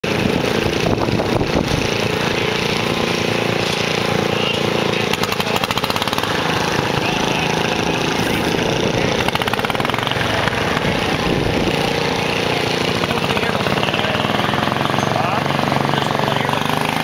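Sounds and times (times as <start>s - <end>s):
small tractor engine running: 0.0s - 17.0s.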